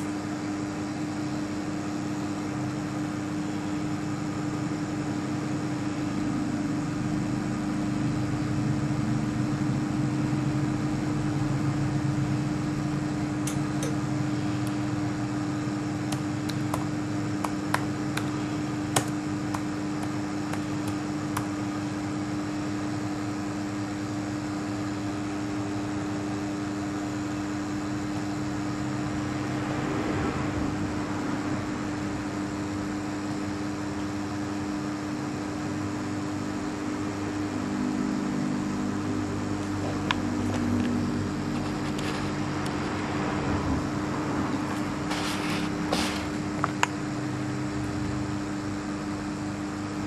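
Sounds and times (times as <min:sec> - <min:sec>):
machine hum: 0:00.0 - 0:50.0.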